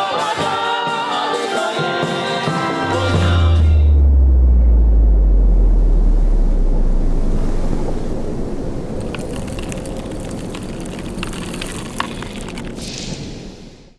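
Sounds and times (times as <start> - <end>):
noisy rush: 2.8 - 13.9
deep rumble: 2.9 - 13.3
crackles and clicks: 7.0 - 13.8.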